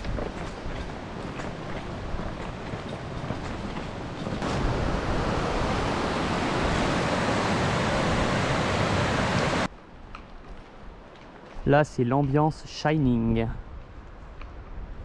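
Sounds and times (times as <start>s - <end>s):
water rushing over rocks: 4.4s - 9.7s.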